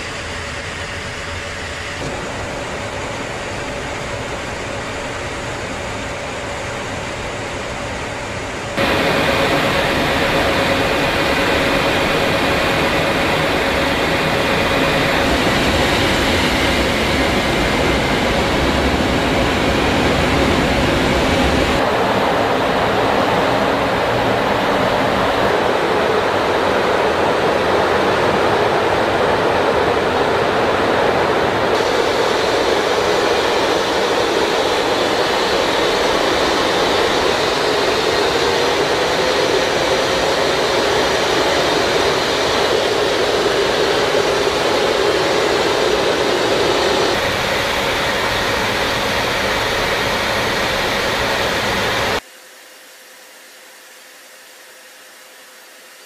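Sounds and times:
jet engines roaring: 0.0 - 52.2
rushing air: 8.8 - 52.2.

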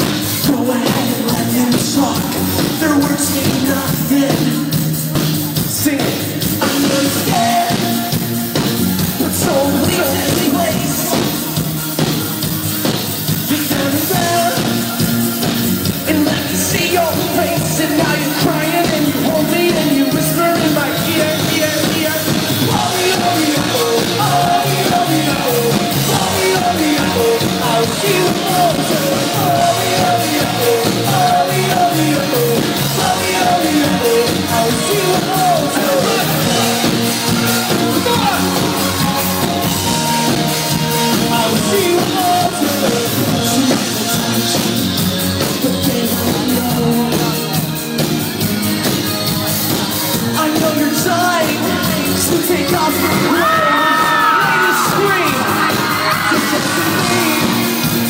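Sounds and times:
electric guitars: 0.0 - 58.0
lead singer singing: 0.0 - 58.0.

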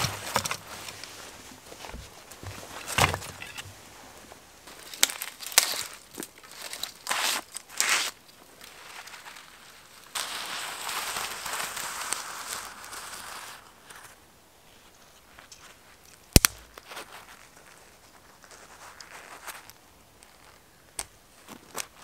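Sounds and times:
twigs crackling and rustling: 0.0 - 22.0
twig snapping: 16.1 - 16.9.

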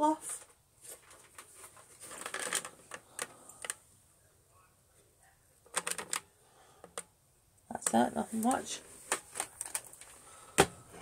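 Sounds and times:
handling clicks and rustles: 0.4 - 3.8, 5.6 - 7.1, 7.8 - 11.0.

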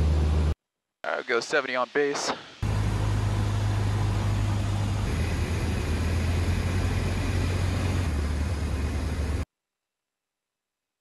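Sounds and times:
aircraft engine and propeller droning: 0.0 - 0.5, 2.6 - 9.4.

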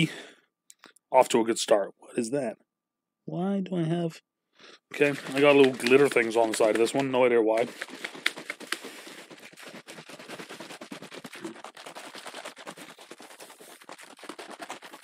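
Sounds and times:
plastic shaker bottle shaken: 4.9 - 15.0.

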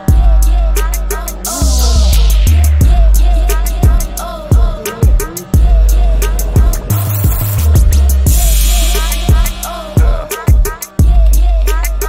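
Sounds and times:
music with deep bass and drums: 0.0 - 12.0
cymbal-like swell: 1.3 - 10.0.

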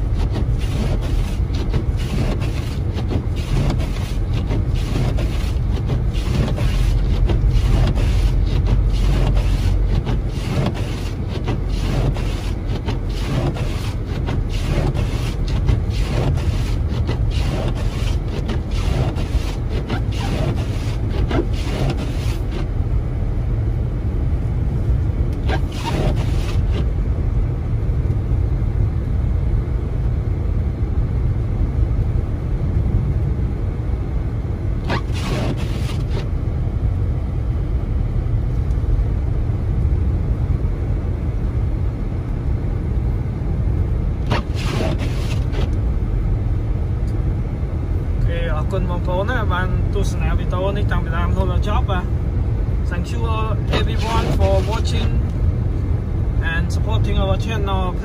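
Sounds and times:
windshield wipers swishing: 0.0 - 22.8, 25.3 - 27.0, 34.8 - 36.3, 44.2 - 45.9, 53.0 - 55.4
tyre and road noise: 0.0 - 28.3, 32.2 - 37.4, 42.2 - 58.0.

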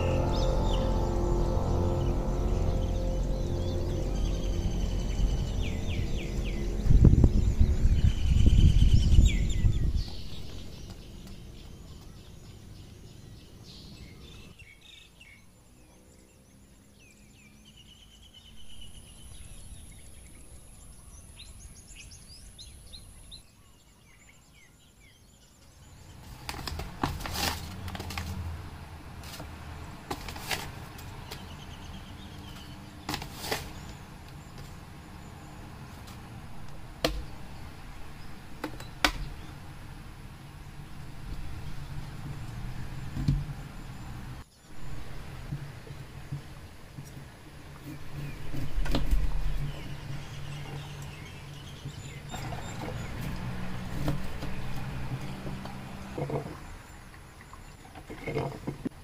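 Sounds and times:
birds chirping: 0.0 - 27.0, 29.6 - 58.7.

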